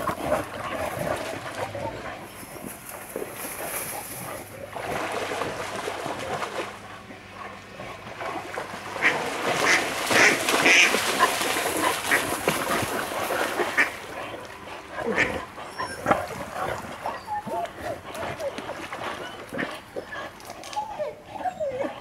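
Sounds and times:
dog splashing through water: 0.0s - 20.7s
ducks quacking: 8.9s - 20.4s.

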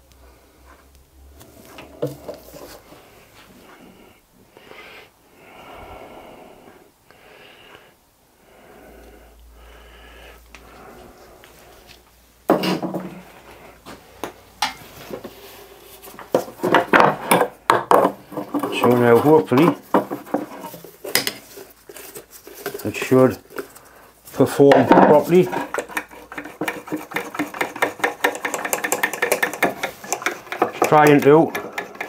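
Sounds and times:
heavy breathing: 2.2s - 12.1s, 23.6s - 24.2s
object put down clattering: 12.5s - 13.2s
rag wiping pot: 18.2s - 32.0s.

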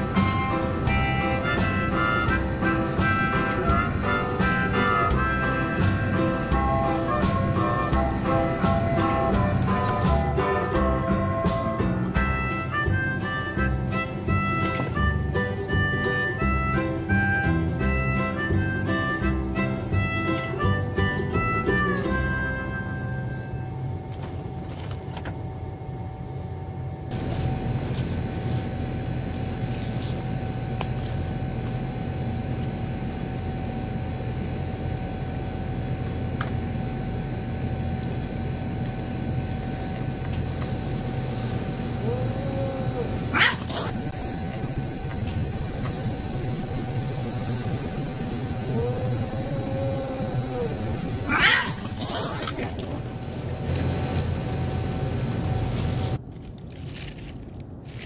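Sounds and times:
mechanical hum: 0.0s - 58.0s
cat hissing: 41.3s - 53.0s
cat yowling: 42.0s - 45.1s, 46.2s - 52.7s.

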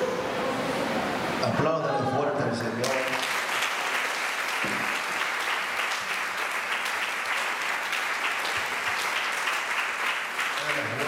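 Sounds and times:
crowd applauding: 2.4s - 11.0s.

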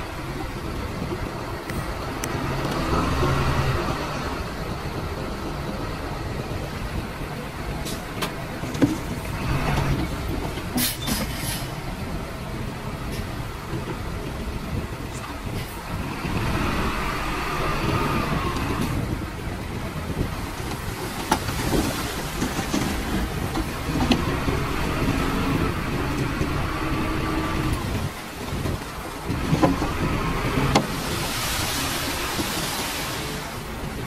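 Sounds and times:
bulldozer and trucks running: 0.0s - 34.0s.

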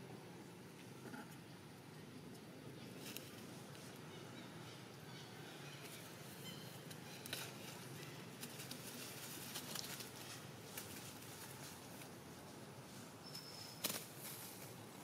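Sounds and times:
steady outdoor hiss: 0.0s - 15.0s
clicks and scuffles on dry leaves: 6.8s - 13.1s.

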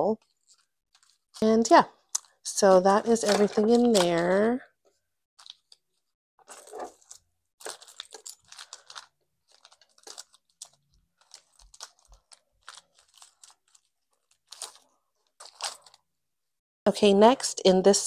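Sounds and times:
mesh pouch crinkling: 0.2s - 2.4s, 5.4s - 16.0s.

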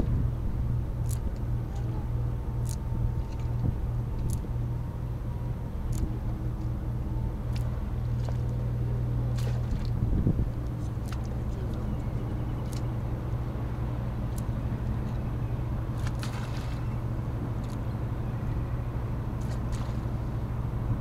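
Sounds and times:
engine idling hum: 0.0s - 21.0s
faint high ticks: 12.6s - 12.9s, 14.3s - 14.5s.

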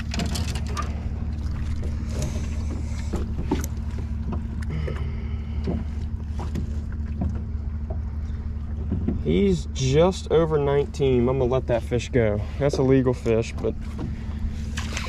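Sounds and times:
knocks and rustles handling fish: 0.0s - 9.5s, 12.5s - 15.0s
boat motor humming: 0.0s - 15.0s.

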